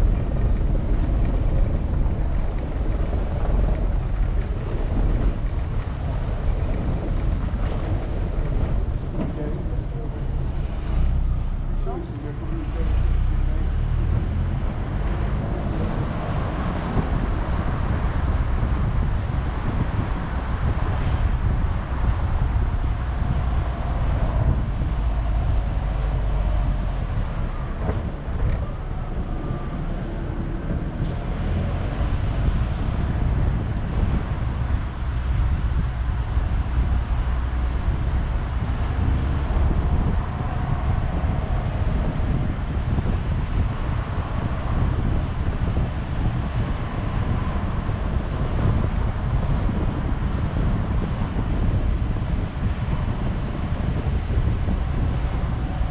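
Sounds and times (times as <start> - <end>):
car road and engine rumble: 0.0 - 55.9
wind buffeting microphone: 0.0 - 55.9.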